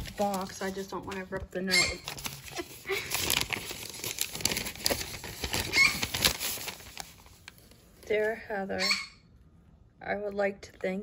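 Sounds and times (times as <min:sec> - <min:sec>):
paper rustling and crinkling: 0:00.0 - 0:08.3.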